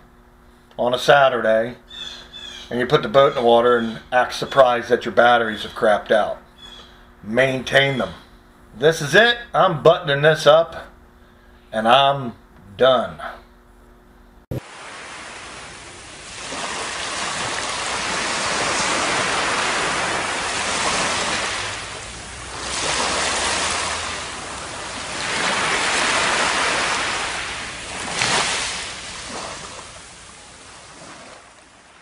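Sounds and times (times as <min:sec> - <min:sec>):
small waves washing on sand: 0:14.6 - 0:32.0.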